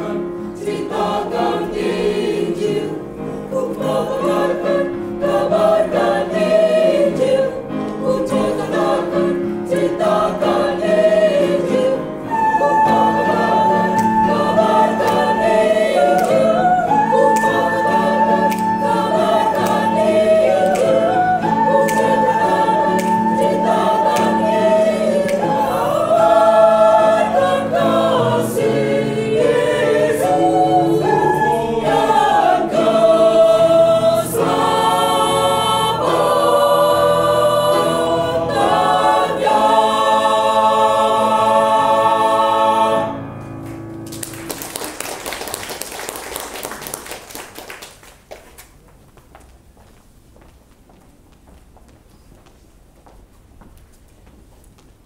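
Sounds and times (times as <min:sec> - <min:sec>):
choir singing a hymn: 0:00.0 - 0:43.6.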